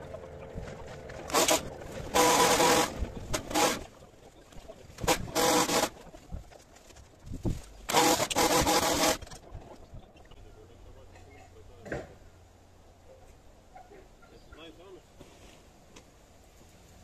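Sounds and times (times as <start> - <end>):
hedge trimmer cutting: 0.0 - 3.9, 5.0 - 6.0, 7.8 - 9.4.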